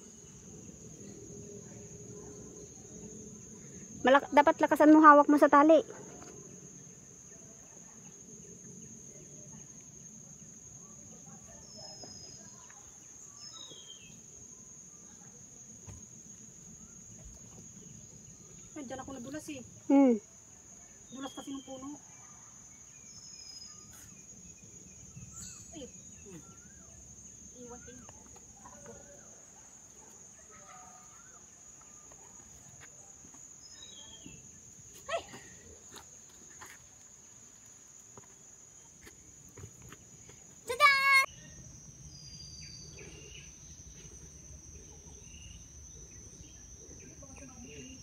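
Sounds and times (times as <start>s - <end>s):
insects droning: 0.0s - 48.0s
bird chirps: 11.6s - 14.3s, 20.9s - 29.4s.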